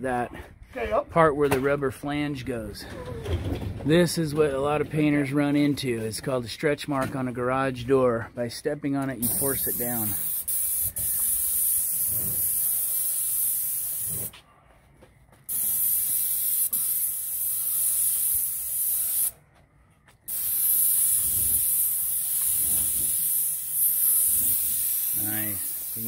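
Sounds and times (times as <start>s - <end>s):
paint sprayer hissing: 9.2s - 14.3s, 15.5s - 19.4s, 20.3s - 26.0s.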